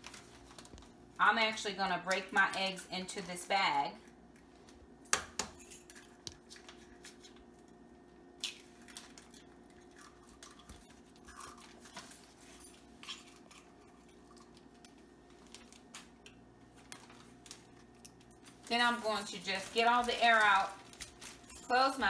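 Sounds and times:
plastic bag crinkling: 0:00.0 - 0:01.3, 0:08.5 - 0:22.0
faint steady hum: 0:00.0 - 0:22.0.

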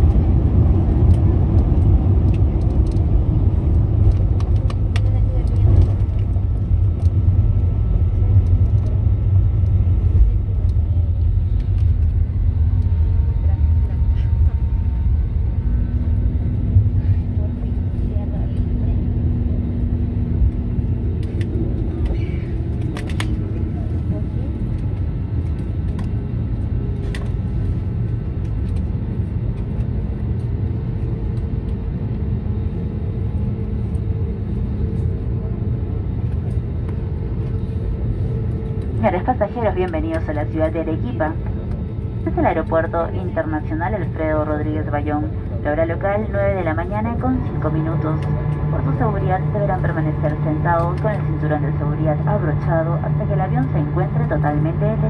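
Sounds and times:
airliner cabin rumble on runway: 0:00.0 - 0:55.0.

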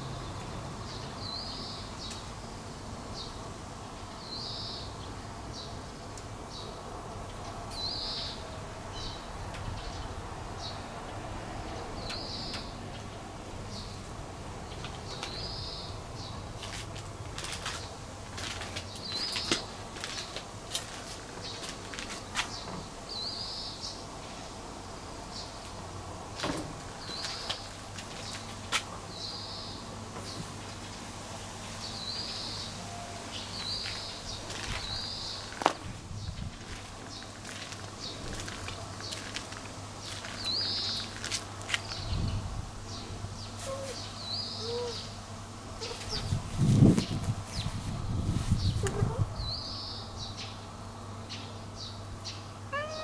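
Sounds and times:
birds calling: 0:31.8 - 0:53.0
short high bird calls: 0:43.6 - 0:45.1, 0:52.8 - 0:53.0
rustling in grass: 0:45.8 - 0:49.1.

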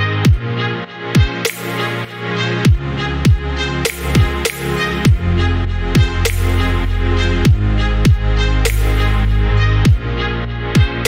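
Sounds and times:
electronic dance music: 0:00.0 - 0:11.0
deep bass line: 0:02.4 - 0:11.0.

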